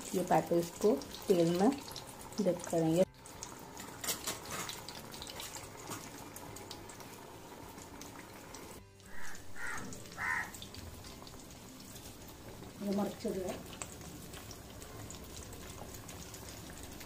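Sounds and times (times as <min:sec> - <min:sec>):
patties sizzling in hot oil: 0:00.0 - 0:17.0
metal spatula scraping: 0:04.0 - 0:06.1.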